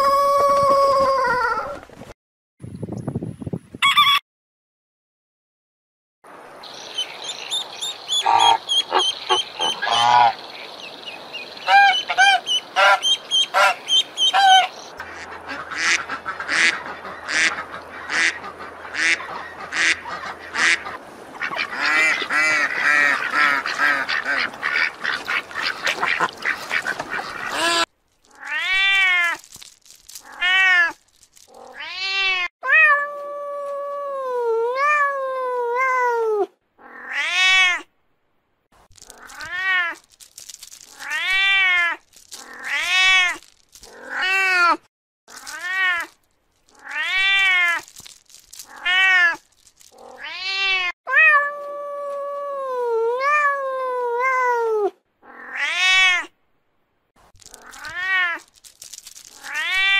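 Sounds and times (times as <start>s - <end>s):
waterfowl honking and quacking: 6.8s - 27.8s.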